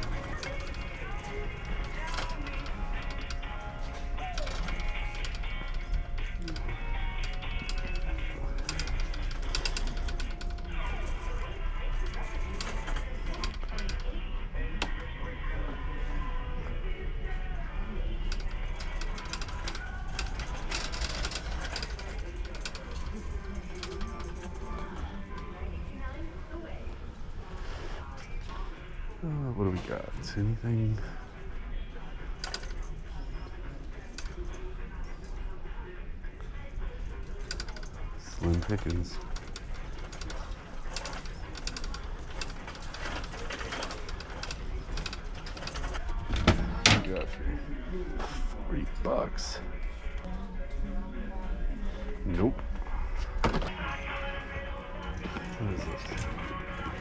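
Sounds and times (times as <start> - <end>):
shopping cart rattling: 0.0 - 14.2, 18.3 - 26.3, 32.3 - 34.6, 37.3 - 47.3, 53.1 - 57.0.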